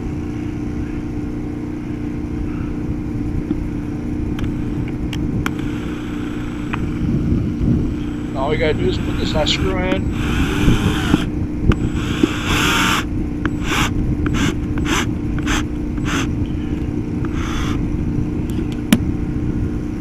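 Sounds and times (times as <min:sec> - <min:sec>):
steady low rumble: 0:00.0 - 0:20.0
cordless drill driving screw: 0:05.5 - 0:06.8, 0:08.9 - 0:16.3, 0:17.2 - 0:17.8.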